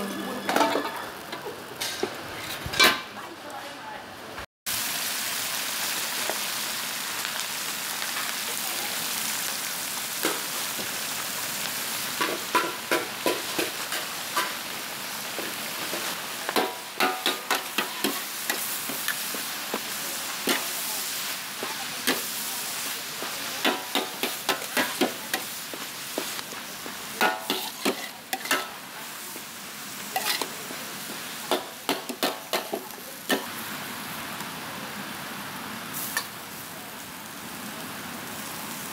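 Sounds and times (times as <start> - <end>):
metal utensils scraping wok: 0.0 - 3.2, 27.2 - 28.8, 30.1 - 30.6
greens sizzling in a wok: 0.0 - 4.0, 4.7 - 38.9.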